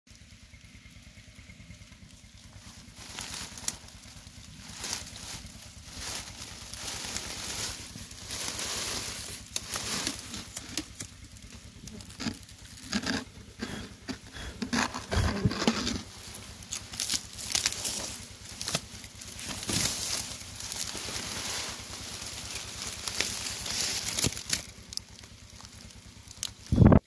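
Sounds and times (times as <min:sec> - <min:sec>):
dry grass rustling and crackling: 0:00.1 - 0:27.0
stalks snapping and scraping: 0:06.0 - 0:26.7.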